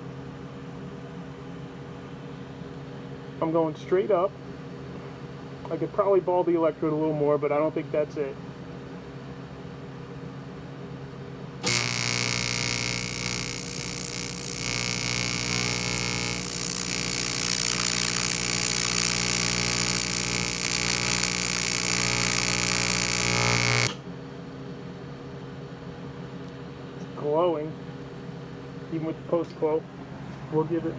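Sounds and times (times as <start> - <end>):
welding arc buzzing: 11.6 - 24.0.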